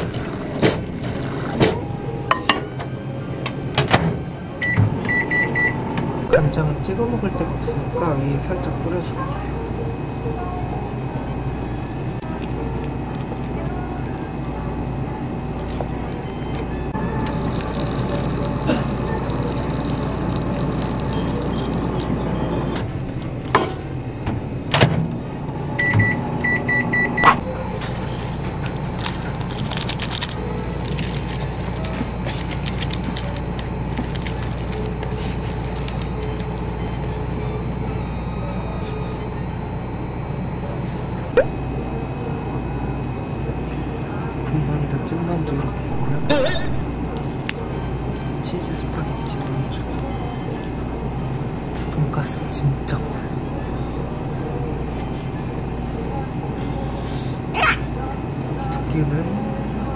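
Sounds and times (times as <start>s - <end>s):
steady low hum: 0.0s - 59.9s
microwave keypad beeping: 4.6s - 5.8s, 25.8s - 27.4s.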